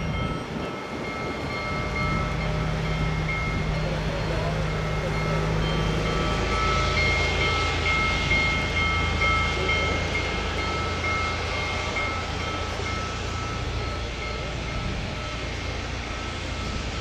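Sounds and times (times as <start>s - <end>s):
high ringing tone: 0.0s - 17.0s
steam locomotive rumbling: 0.0s - 17.0s.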